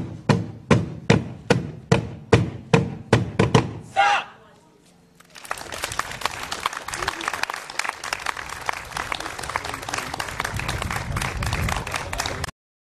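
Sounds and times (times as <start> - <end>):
audience applause: 5.2 - 12.5.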